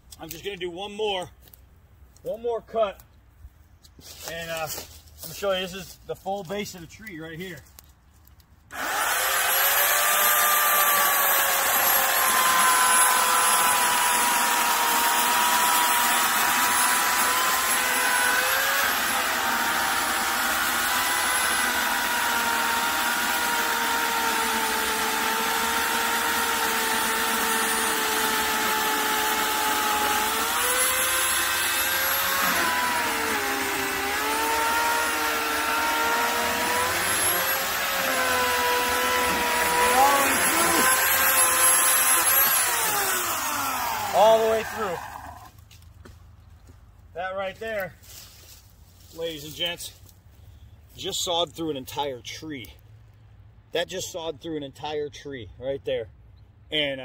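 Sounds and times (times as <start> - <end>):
electric chainsaw cutting wood: 8.7 - 45.6.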